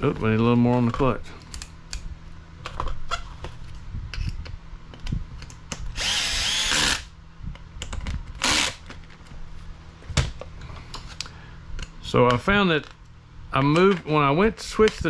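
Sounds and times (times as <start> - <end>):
electric screwdriver whirring: 6.0 - 7.1, 8.4 - 8.8.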